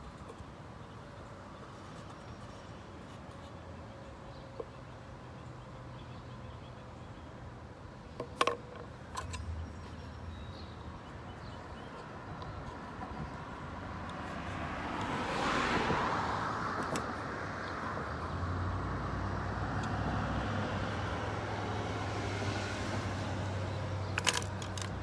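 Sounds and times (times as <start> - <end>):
faint traffic hum: 0.0 - 25.0
vehicle approaching: 9.2 - 25.0.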